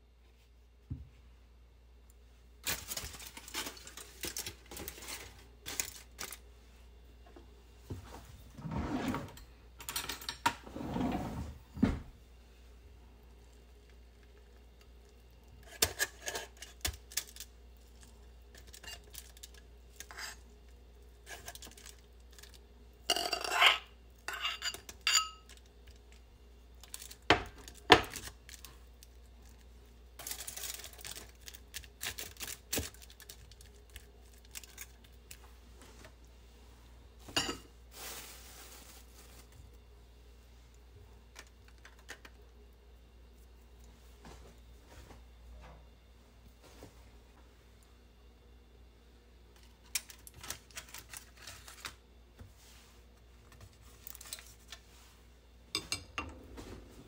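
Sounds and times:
aluminium foil crinkling: 2.6s - 6.5s, 13.4s - 22.7s, 26.8s - 35.6s, 37.9s - 39.8s, 41.3s - 42.4s, 49.6s - 52.0s, 53.4s - 54.8s.

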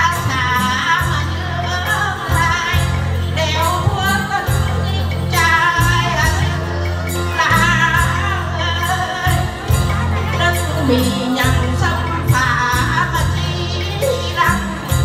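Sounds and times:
high percussion beat: 0.0s - 15.0s
pulsing bass line: 4.6s - 15.0s
women singing together: 5.3s - 15.0s.

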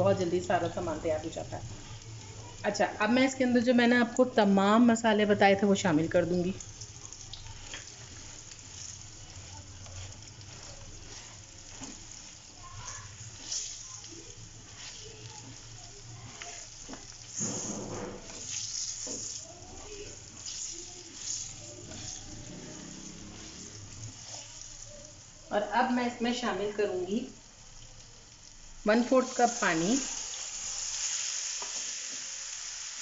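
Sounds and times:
potatoes sizzling in oil: 0.0s - 33.0s
spatula scraping and knocking pan: 7.6s - 14.0s, 14.6s - 24.8s.

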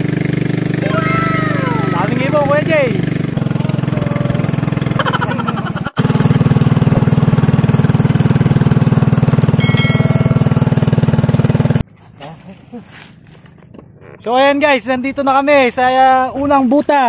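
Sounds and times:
small boat engine putter: 6.0s - 12.1s, 13.0s - 14.3s.

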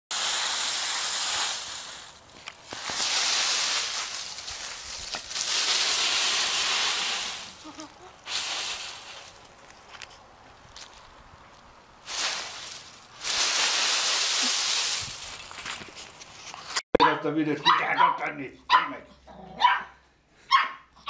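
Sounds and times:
dry leaves crunching and rustling: 0.1s - 16.8s.

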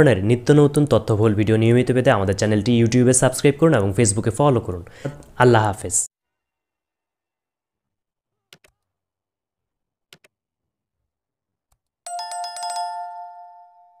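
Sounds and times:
bell chime ringing: 12.1s - 14.0s.

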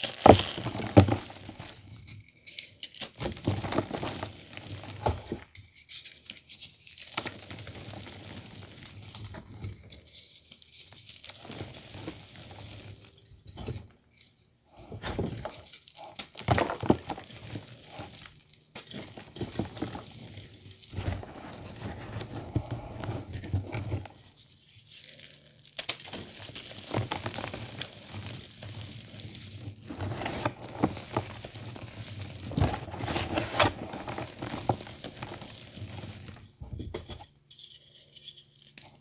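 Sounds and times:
hands crushing chalk: 24.4s - 36.4s.

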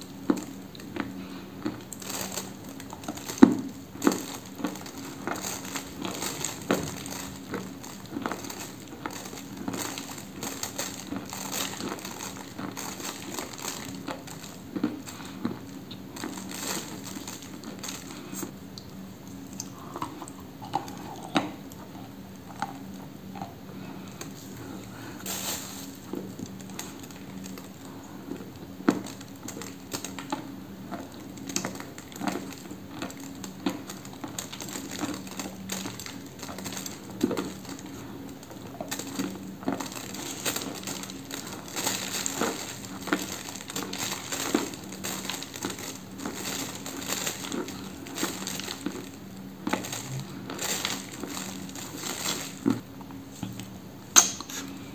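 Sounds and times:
chalk crunched and chewed: 0.1s - 54.7s.

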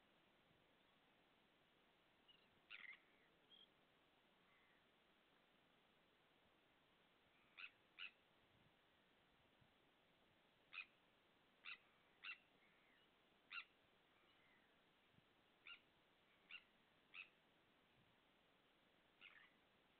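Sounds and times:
faint steady hiss: 0.0s - 19.9s
tern calling: 2.3s - 3.8s, 7.3s - 8.3s, 10.7s - 11.0s, 11.6s - 14.8s, 15.6s - 17.4s, 19.2s - 19.6s.

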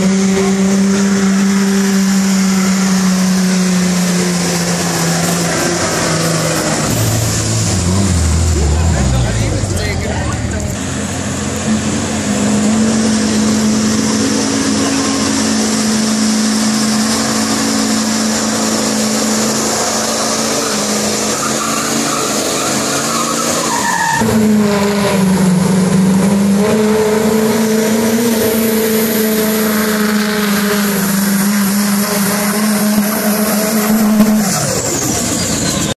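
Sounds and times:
tyres spinning on wet pavement: 0.0s - 26.2s
truck engine at high revs: 0.0s - 36.0s.

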